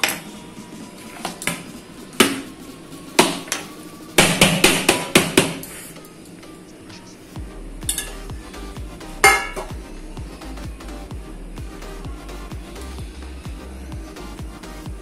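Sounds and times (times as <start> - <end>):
knocking on metal cake tin: 4.2 - 5.6.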